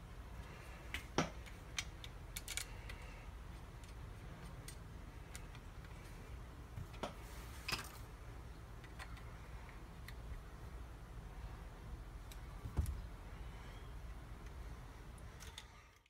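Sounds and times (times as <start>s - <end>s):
metal parts and tools clicking: 1.4s - 6.1s, 15.3s - 16.0s.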